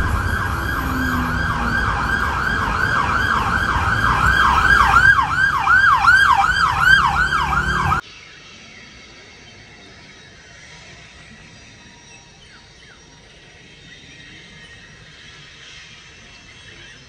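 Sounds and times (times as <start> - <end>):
low rumble: 0.0 - 8.0
siren wailing yelp: 0.0 - 8.0.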